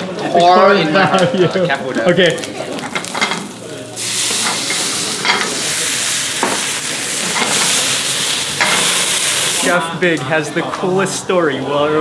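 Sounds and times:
mushrooms sizzling in a pan: 0:02.4 - 0:09.9.

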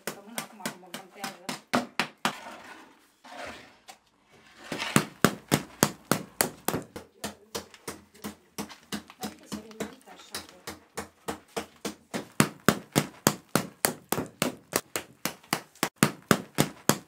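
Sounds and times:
wooden stick knocking bread crust: 0:04.8 - 0:17.0.

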